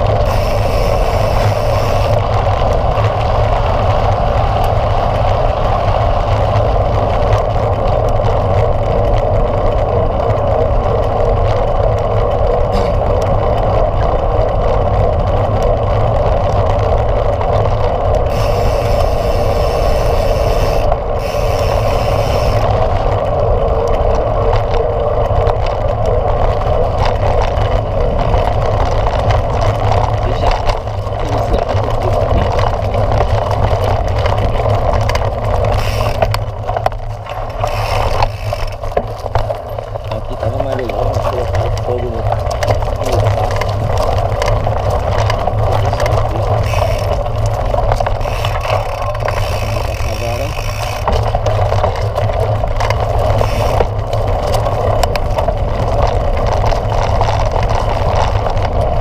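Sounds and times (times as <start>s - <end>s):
bike tyres rolling: 0.0s - 59.0s
wind on camera: 0.0s - 59.0s.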